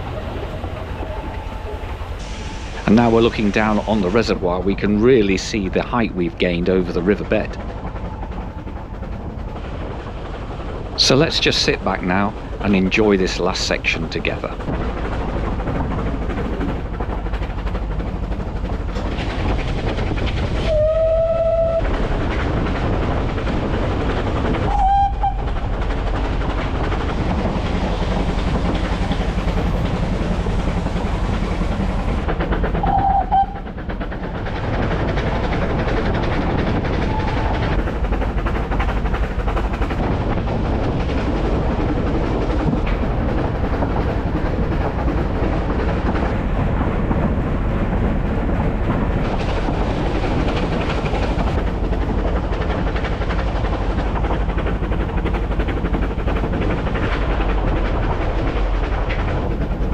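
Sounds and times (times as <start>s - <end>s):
train wheels rumbling and clattering: 0.0s - 59.9s
steam whistle: 20.7s - 21.8s, 24.7s - 25.4s, 32.8s - 33.6s.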